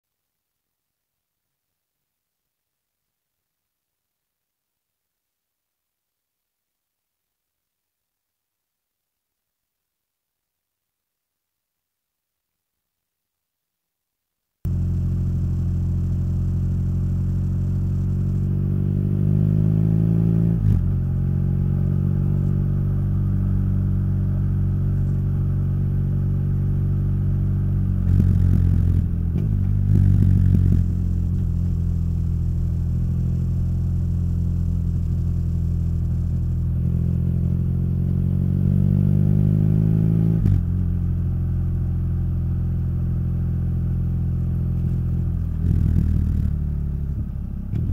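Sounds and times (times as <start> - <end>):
motorcycle engine idling and revving: 14.7 - 47.9.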